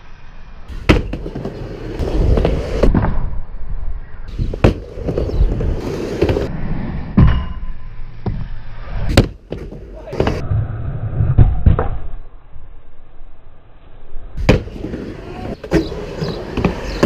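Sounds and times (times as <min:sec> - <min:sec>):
skateboard wheels rumbling: 0:00.7 - 0:03.2, 0:04.3 - 0:07.0, 0:14.4 - 0:17.0.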